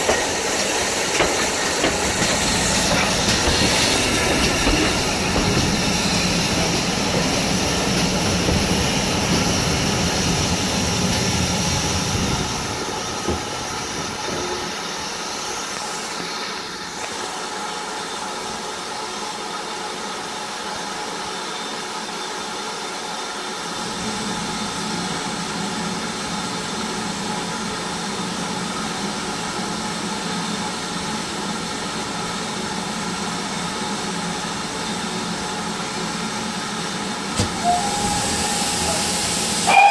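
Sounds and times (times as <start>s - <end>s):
train wheels rumbling on rail: 0.0s - 39.9s.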